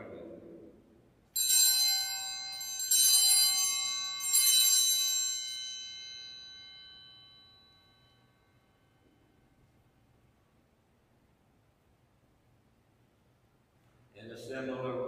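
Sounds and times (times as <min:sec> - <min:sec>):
altar bells ringing: 0:01.4 - 0:09.7.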